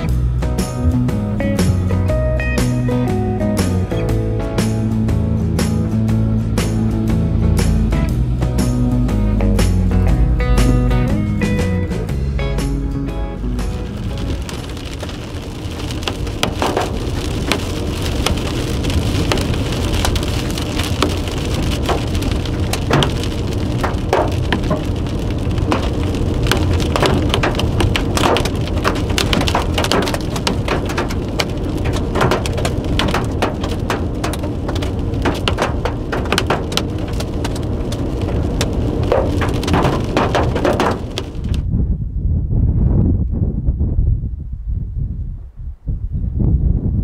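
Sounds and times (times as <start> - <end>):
road and engine noise: 0.0 - 41.9
raindrops ticking on car: 13.4 - 41.6.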